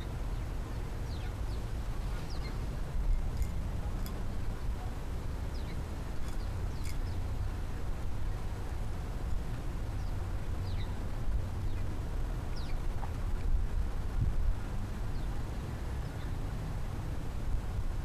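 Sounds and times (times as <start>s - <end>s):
small birds chirping: 0.0s - 7.6s, 9.9s - 11.0s, 12.5s - 12.9s.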